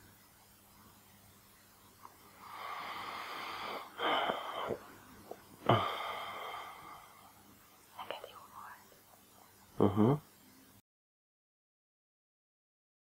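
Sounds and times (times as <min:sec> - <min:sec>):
person breathing close to microphone: 0:02.4 - 0:04.9, 0:05.6 - 0:07.4.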